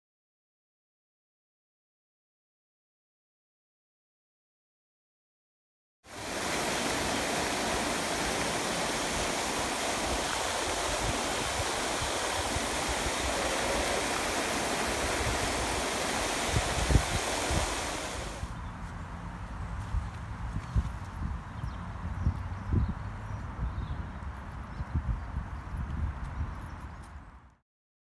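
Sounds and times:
rush of flowing water: 6.1s - 18.5s
outdoor background noise: 6.1s - 27.6s.

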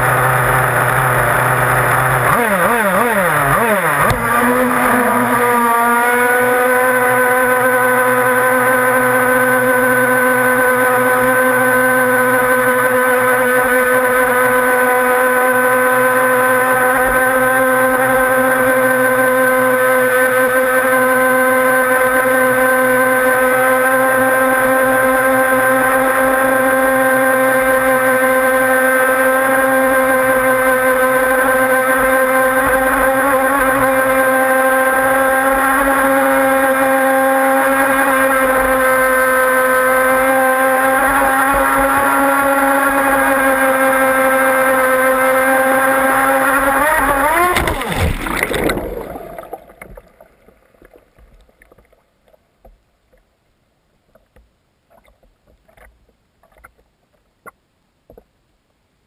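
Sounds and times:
race boat engine running: 0.0s - 50.5s
water spray noise: 46.1s - 50.3s
water sloshing: 47.0s - 53.2s.

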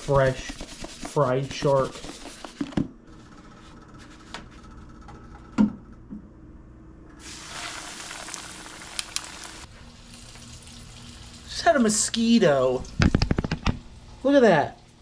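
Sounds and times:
fish sizzling in hot oil: 7.2s - 11.5s.

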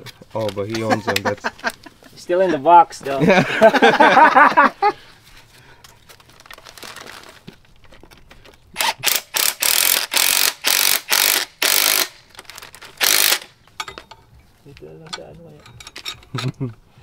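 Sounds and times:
impact wrench hammering: 13.0s - 14.0s.

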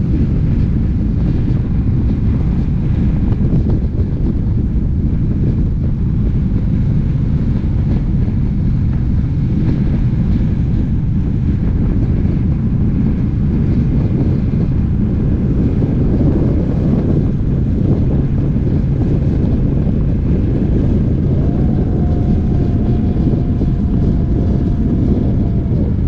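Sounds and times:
motorcycle engine cruising: 0.0s - 26.0s
wind on microphone: 0.0s - 26.0s.

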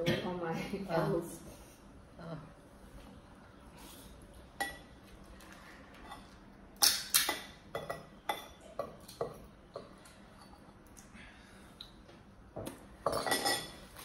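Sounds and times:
shells and utensils clinking on dishes: 13.0s - 14.0s.

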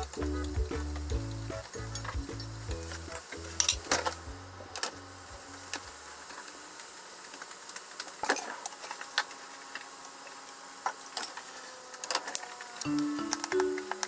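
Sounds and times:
low background music: 0.0s - 5.8s, 12.9s - 14.0s.

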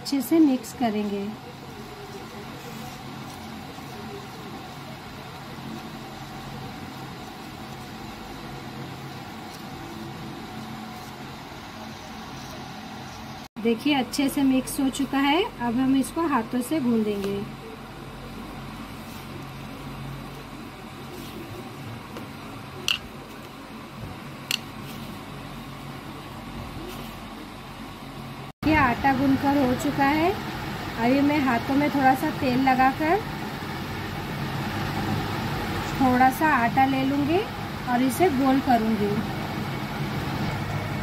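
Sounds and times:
low background hum: 0.0s - 41.0s
hands kneading dough: 0.2s - 13.4s, 18.4s - 27.6s.

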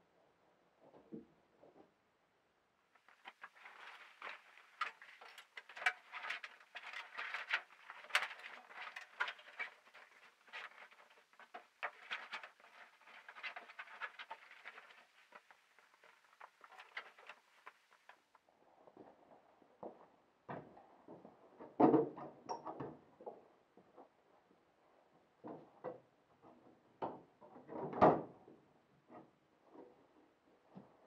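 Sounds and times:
fabric cover rustling and crinkling: 3.0s - 18.3s.

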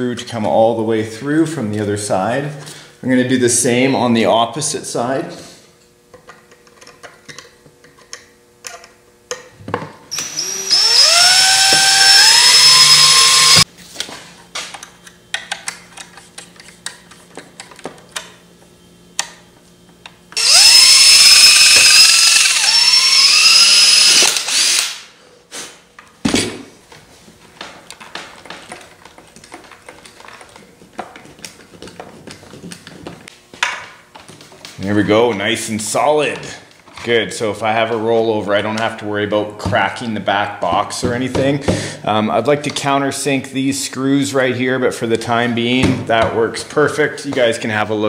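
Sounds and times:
cordless drill whining: 10.1s - 13.7s, 20.4s - 25.0s
clicks and knocks of handled parts: 14.6s - 18.4s, 27.6s - 34.8s.

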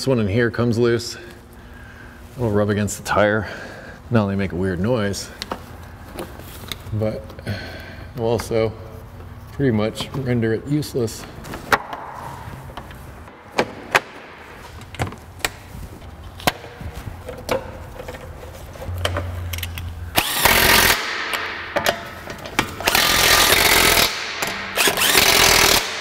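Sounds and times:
impact wrench hammering: 20.1s - 26.0s.

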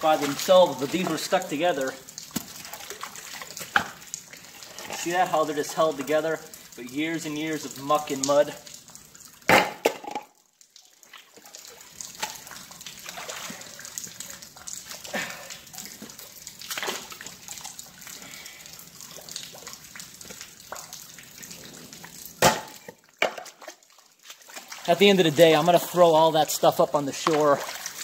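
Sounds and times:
river water sloshing and splashing: 11.1s - 13.9s, 22.4s - 25.4s, 27.2s - 28.0s.

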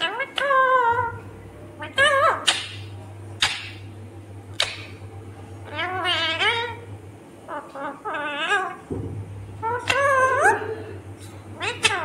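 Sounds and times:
parakeet screeching: 0.0s - 1.2s, 5.6s - 6.8s, 7.5s - 8.8s, 9.6s - 10.6s, 11.6s - 12.0s
parakeet warbling chatter: 0.0s - 1.2s, 1.8s - 3.8s, 5.6s - 6.9s, 7.5s - 8.8s, 9.6s - 10.8s, 11.6s - 12.0s.

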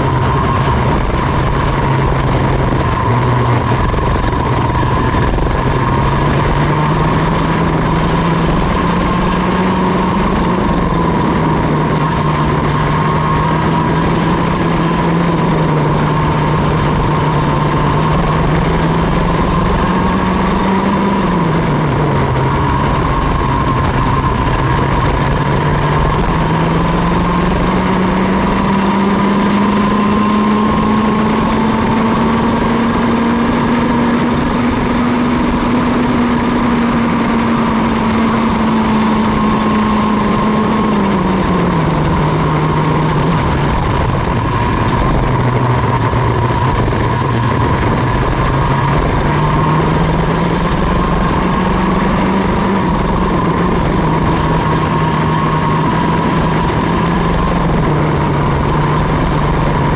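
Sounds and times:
two-stroke kart engine racing: 0.0s - 59.9s.

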